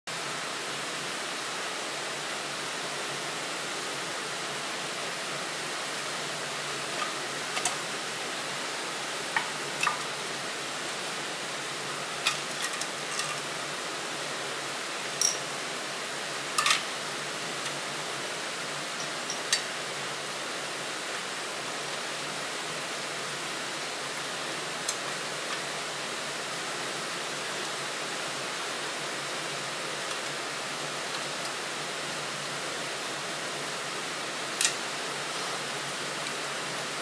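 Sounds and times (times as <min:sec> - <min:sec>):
metallic clicks and clinks: 0:15.1 - 0:15.4.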